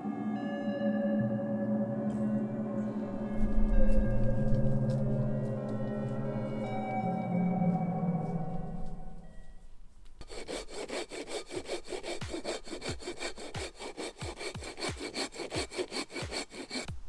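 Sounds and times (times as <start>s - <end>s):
hand saw cutting log: 10.2s - 17.0s.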